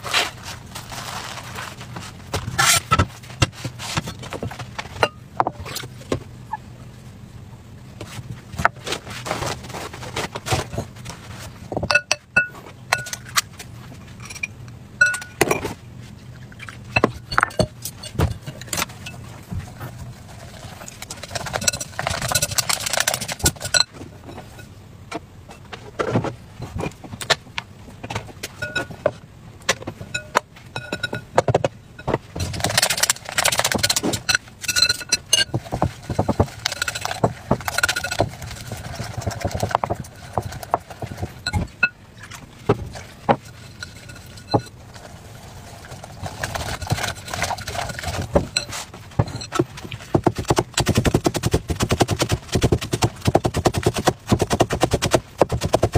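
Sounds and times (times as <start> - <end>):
chopsticks beating batter in glass bowl: 16.9 - 24.7, 32.0 - 42.0, 42.7 - 55.9.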